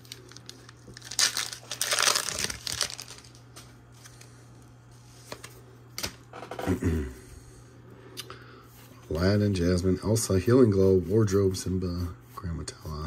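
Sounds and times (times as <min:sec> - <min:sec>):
foil pack crinkling: 0:00.0 - 0:04.4.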